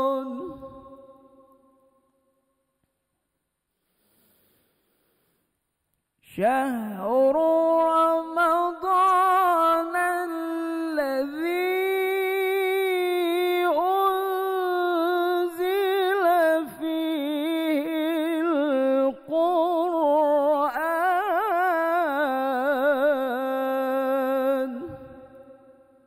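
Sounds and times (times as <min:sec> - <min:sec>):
man chanting melodically: 0:00.0 - 0:01.2, 0:06.2 - 0:25.4.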